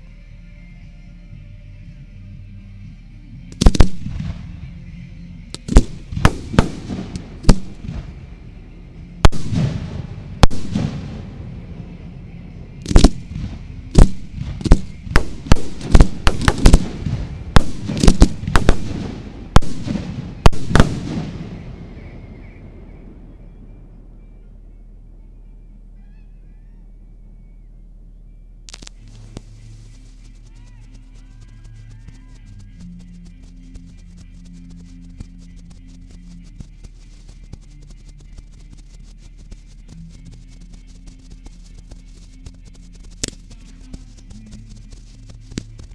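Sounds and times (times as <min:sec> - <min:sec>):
fireworks bangs echoing: 0:03.6 - 0:04.5, 0:05.7 - 0:08.2, 0:09.2 - 0:11.4, 0:12.8 - 0:22.0.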